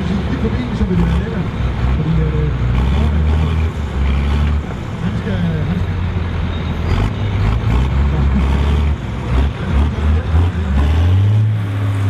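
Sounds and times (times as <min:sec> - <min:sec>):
tractor diesel engine under load: 0:00.0 - 0:12.0.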